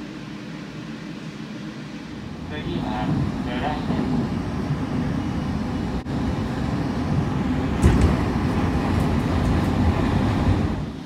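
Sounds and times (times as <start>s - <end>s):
train wheels rumbling on rail: 2.4s - 11.0s
train jolt: 7.6s - 11.0s.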